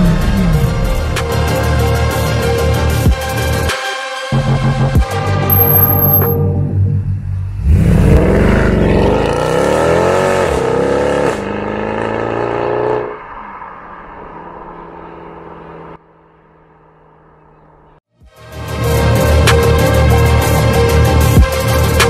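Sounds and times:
car engine accelerating: 7.4 - 18.0.

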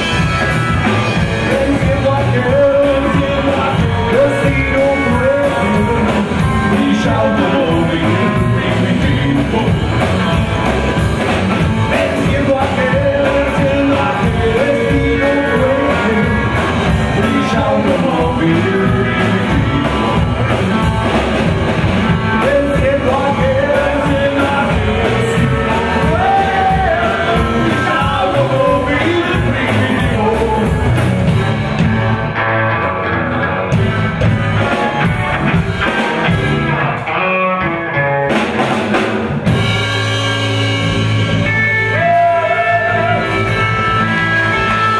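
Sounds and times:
upright double bass: 0.0 - 37.2, 38.3 - 44.9
drum kit: 0.0 - 44.9
electric guitar: 0.0 - 44.9
man singing: 0.9 - 21.2, 22.0 - 31.1, 41.5 - 44.9.

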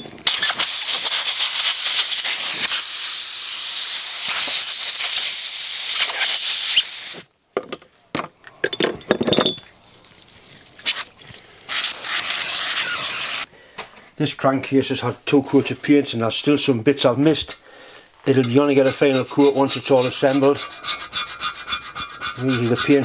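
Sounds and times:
compressed air blow gun hiss: 0.3 - 7.3, 11.7 - 13.5.

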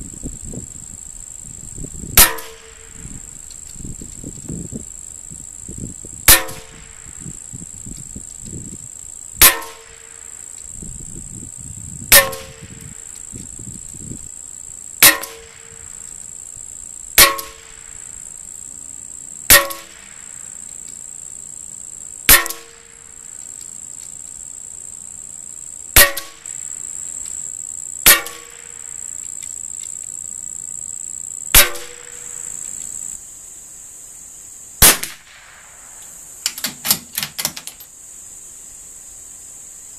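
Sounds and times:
rifle shots: 34.8 - 36.0.

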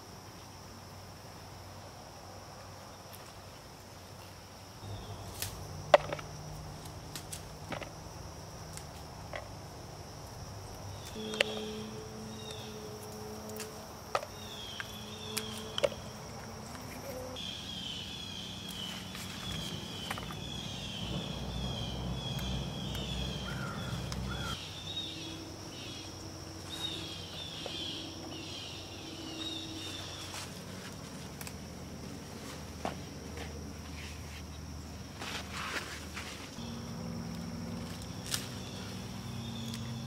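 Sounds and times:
short insect chirps: 3.2 - 31.7
high-pitched insect drone: 4.8 - 32.0, 36.6 - 40.0.

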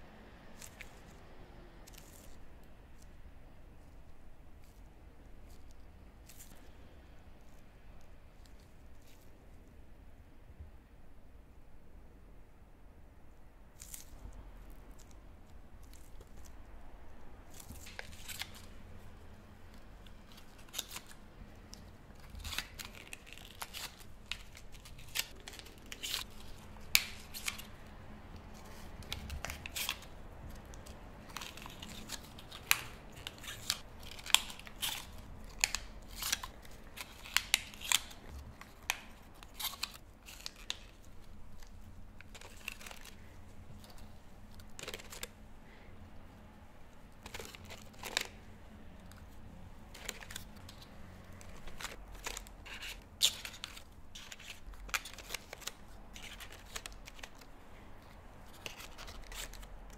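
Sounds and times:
paper cake cups crinkling: 17.4 - 59.9.

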